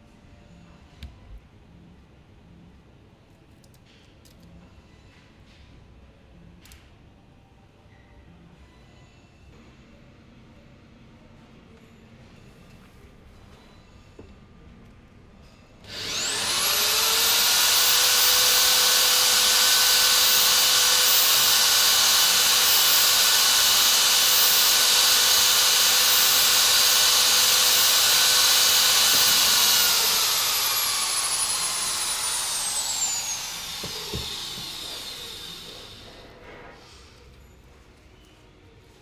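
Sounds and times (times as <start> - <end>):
electric drill whining: 15.9 - 36.2.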